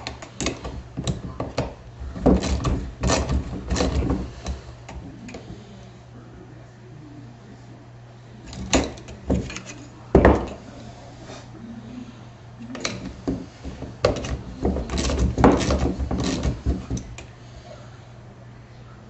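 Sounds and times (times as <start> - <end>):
hand tools knocking: 0.0 - 4.6, 12.7 - 17.3.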